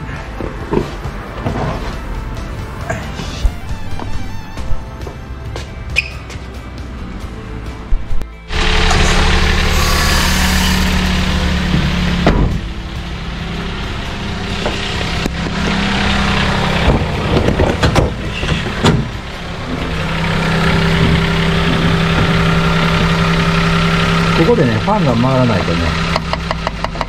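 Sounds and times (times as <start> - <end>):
car engine idling: 6.5 - 27.0
knocks and thumps: 11.6 - 12.7, 16.8 - 19.2.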